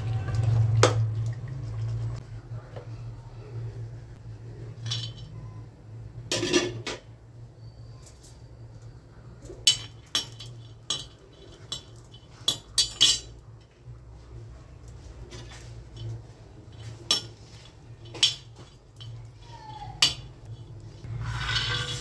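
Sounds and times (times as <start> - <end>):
pieces clattering onto a pan: 4.8 - 5.4, 6.3 - 7.1, 9.4 - 13.4, 18.0 - 19.2, 21.3 - 22.0
steel spoon scraping on a pan: 9.5 - 13.4, 15.1 - 22.0.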